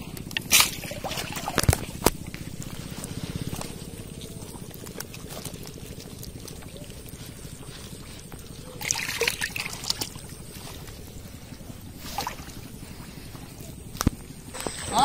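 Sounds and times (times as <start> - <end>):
splashing and rustling: 0.0 - 15.0
small wet clicks: 0.1 - 11.0
water trickling and dripping: 0.2 - 13.4.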